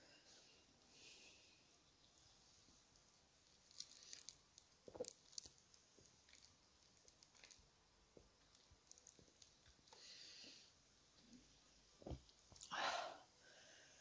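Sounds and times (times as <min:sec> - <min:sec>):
wet clicks and crackles: 0:03.0 - 0:10.0.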